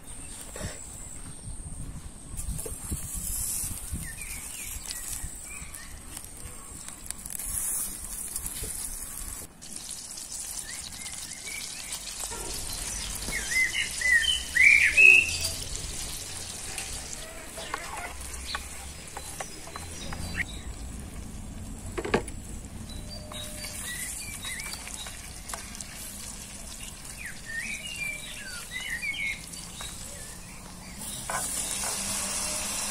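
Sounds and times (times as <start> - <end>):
small birds chirping: 0.0 - 32.9
butter sizzling in a pan: 7.3 - 19.7, 23.1 - 32.9.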